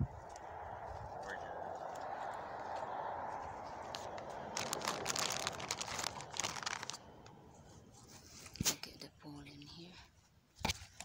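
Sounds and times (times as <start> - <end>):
rustling and crinkling handling noise: 3.7 - 8.8.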